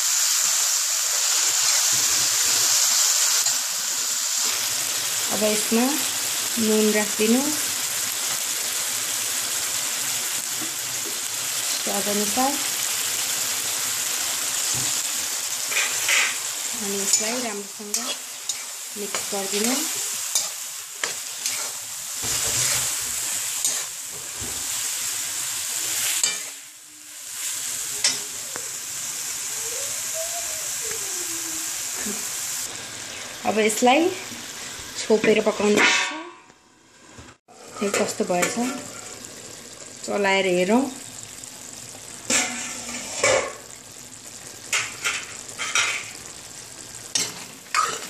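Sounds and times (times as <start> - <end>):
tomatoes sizzling in hot oil: 0.0 - 48.0
metal spoon scraping a pan: 15.6 - 24.4, 26.0 - 26.6, 37.5 - 39.2, 42.3 - 43.6, 44.7 - 46.2, 47.1 - 48.0
wooden spatula scraping pan: 20.4 - 24.6, 42.3 - 43.5.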